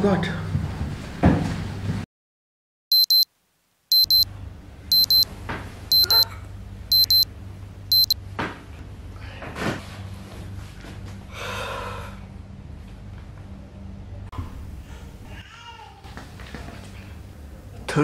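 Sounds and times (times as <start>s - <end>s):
electronic alarm double beeps: 2.9s - 3.2s, 3.9s - 4.3s, 4.9s - 5.2s, 5.9s - 6.3s, 6.9s - 7.2s, 7.9s - 8.2s.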